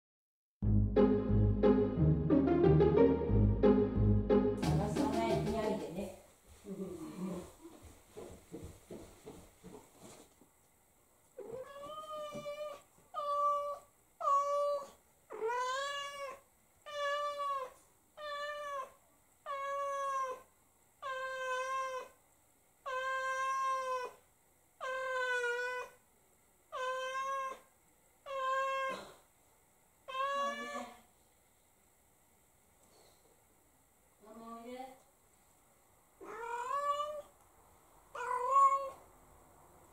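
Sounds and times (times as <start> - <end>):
cat meowing: 11.4 - 22.2, 22.8 - 24.2, 24.8 - 26.0, 26.7 - 29.2, 30.1 - 31.1, 36.2 - 37.3, 38.1 - 39.0.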